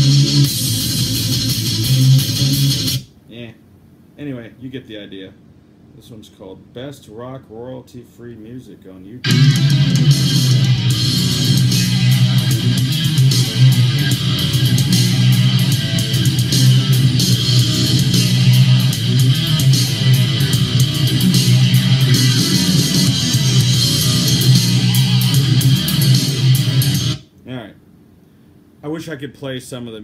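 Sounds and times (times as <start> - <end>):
rock music through speaker: 0.0 - 3.1, 9.2 - 27.2.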